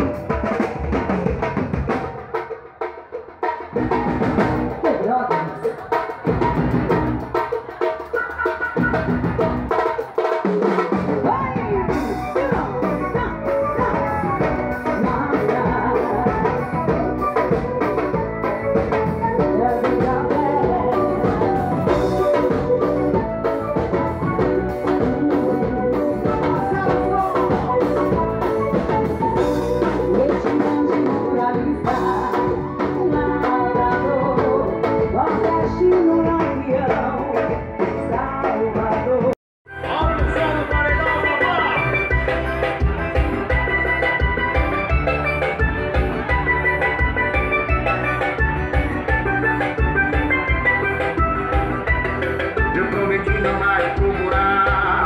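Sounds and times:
keyboard playing: 0:00.0 - 0:02.8, 0:03.4 - 0:55.0
drum kit beat: 0:00.0 - 0:55.0
person singing: 0:11.1 - 0:23.6, 0:24.4 - 0:42.3, 0:52.6 - 0:55.0.

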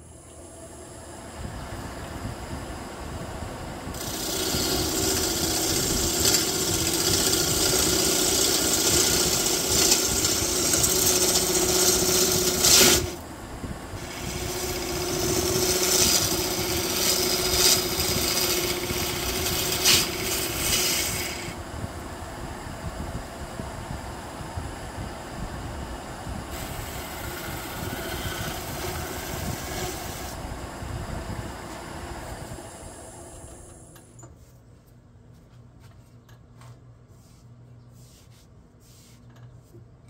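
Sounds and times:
lathe hum: 0:00.0 - 0:22.4, 0:25.9 - 0:34.1
gouge shearing wood shavings: 0:04.0 - 0:13.2, 0:14.0 - 0:21.6, 0:26.5 - 0:30.4.

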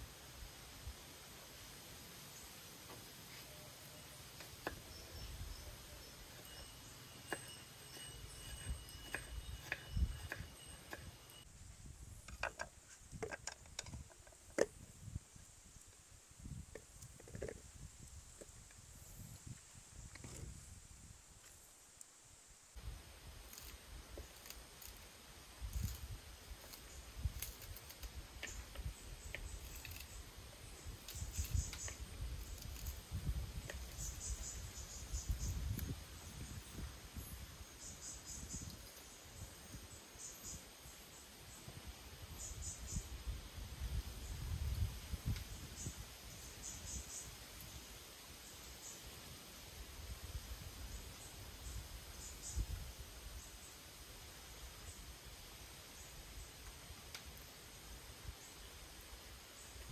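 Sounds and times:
crickets chirping: 0:03.3 - 0:56.7
garlic skins peeling clicks: 0:25.7 - 0:30.2, 0:31.1 - 0:33.0.

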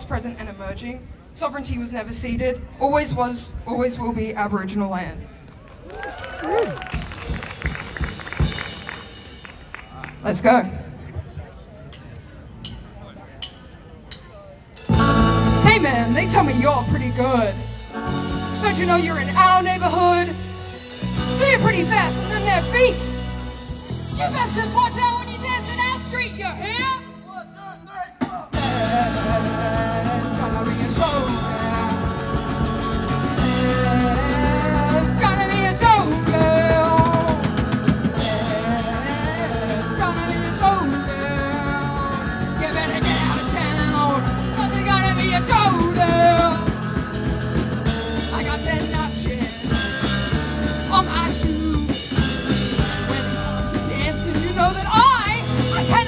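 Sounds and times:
drum kit: 0:06.8 - 0:09.9, 0:11.9 - 0:27.2, 0:28.2 - 0:56.0
bass guitar: 0:14.8 - 0:27.4, 0:28.5 - 0:56.0
person singing: 0:28.2 - 0:46.8
electric guitars: 0:28.6 - 0:56.0.

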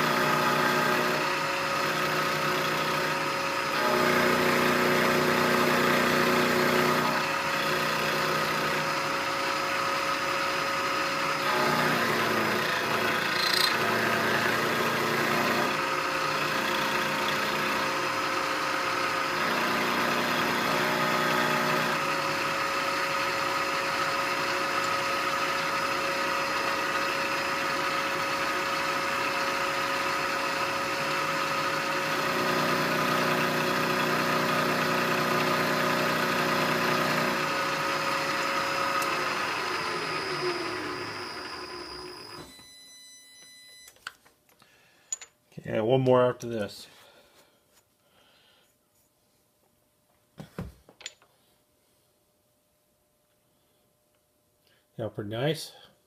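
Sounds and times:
end mill cutting steel: 0:00.0 - 0:42.5
milling machine spindle whine: 0:00.0 - 0:42.8.

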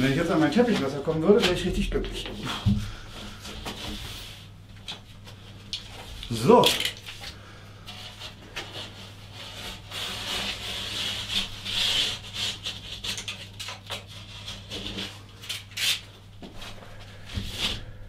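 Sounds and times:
plasterboard scraping and rasping: 0:07.8 - 0:18.0.

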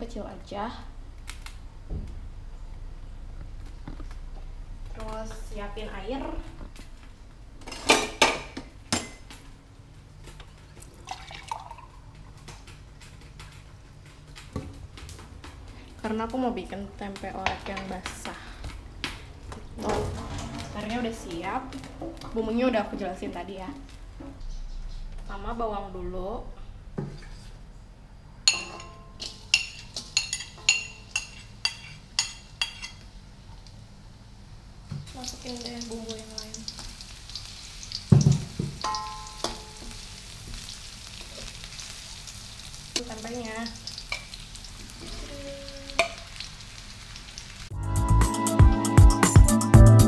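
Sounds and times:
tap water running into glass: 0:11.0 - 0:12.0
dishware clattering: 0:19.8 - 0:21.1, 0:28.5 - 0:33.0, 0:38.2 - 0:39.8
metal spoon clinking on ceramic plate: 0:28.5 - 0:33.0, 0:38.8 - 0:39.8.

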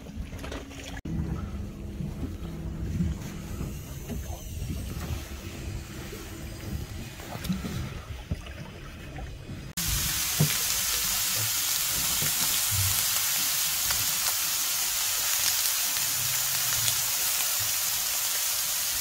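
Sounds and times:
fish sizzling in a frying pan: 0:09.8 - 0:19.0.

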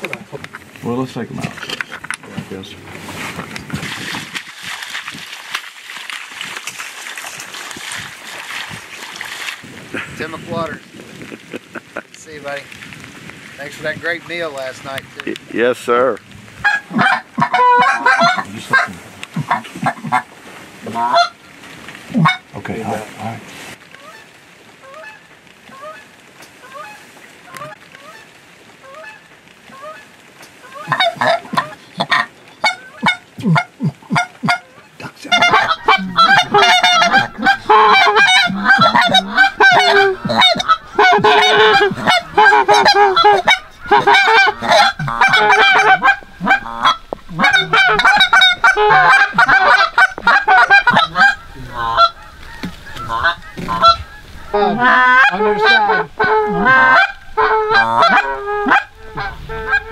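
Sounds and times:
goose calls honking and clucking: 0:16.6 - 0:21.4, 0:22.1 - 0:23.0, 0:24.0 - 0:59.9.

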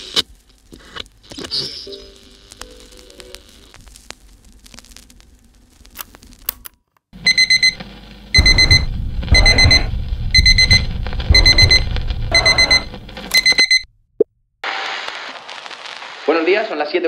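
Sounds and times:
digital alarm clock beeping: 0:07.3 - 0:07.8, 0:08.4 - 0:13.9
deep drum beat: 0:08.4 - 0:13.8.

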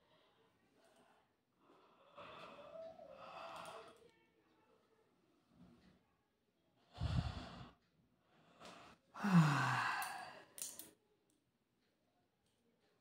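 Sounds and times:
woman yawning: 0:09.2 - 0:10.4.

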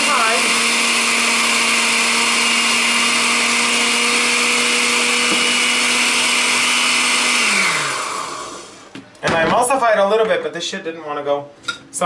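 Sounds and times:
blender running: 0:00.0 - 0:08.9.

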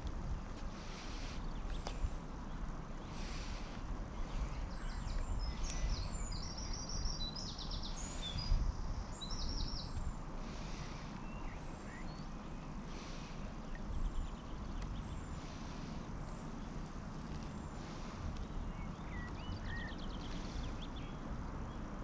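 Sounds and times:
low outdoor rumble: 0:00.0 - 0:22.0
songbird chirping and trilling: 0:00.8 - 0:22.0.

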